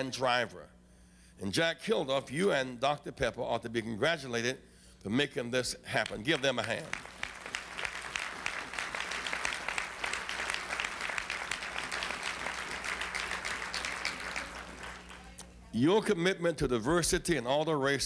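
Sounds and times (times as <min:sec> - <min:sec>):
audience applauding: 0:06.0 - 0:15.4.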